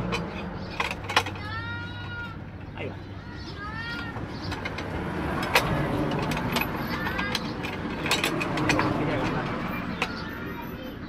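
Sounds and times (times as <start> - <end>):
steel wire clinking on metal: 3.9 - 9.4.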